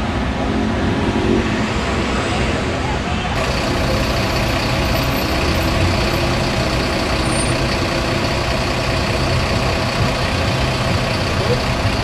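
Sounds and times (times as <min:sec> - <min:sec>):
heavy engine idling: 0:03.4 - 0:12.0.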